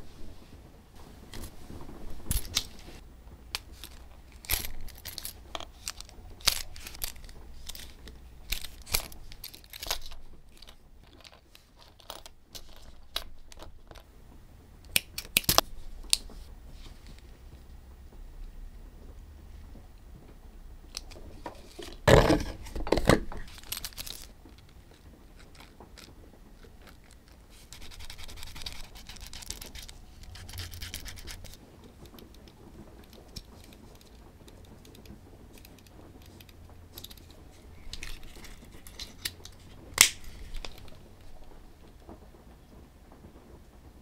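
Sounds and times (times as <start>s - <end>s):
scratchy handling noises: 0.0s - 14.1s, 20.8s - 42.3s
wooden slicker rubbing leather: 23.3s - 41.7s.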